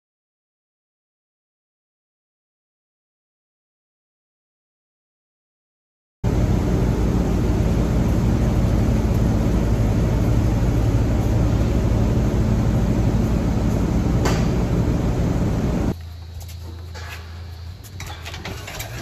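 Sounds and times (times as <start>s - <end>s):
machinery humming and hissing: 6.3s - 19.0s.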